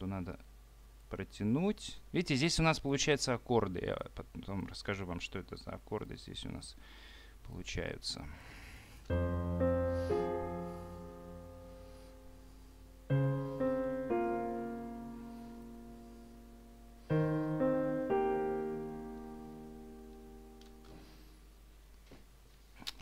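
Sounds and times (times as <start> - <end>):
piano chords: 9.1 - 21.7.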